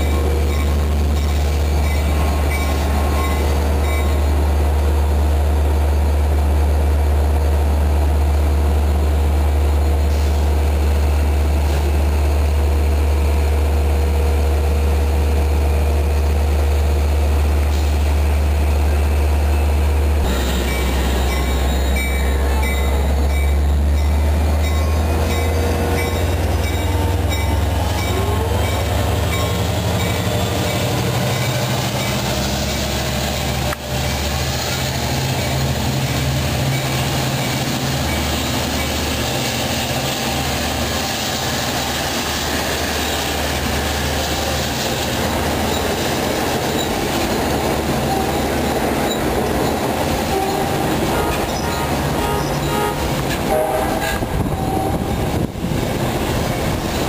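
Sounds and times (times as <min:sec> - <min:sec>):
diesel locomotive engine hum: 0:00.0 - 0:57.0
rolling-stock noise: 0:17.3 - 0:57.0.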